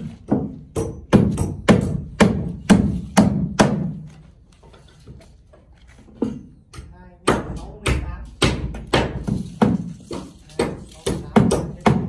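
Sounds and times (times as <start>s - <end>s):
hammer striking nails into wood: 0.2s - 4.1s, 6.7s - 12.0s.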